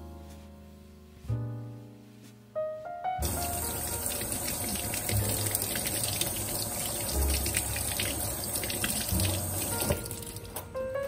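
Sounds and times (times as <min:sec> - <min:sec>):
tap water running into sink: 0:03.2 - 0:10.7.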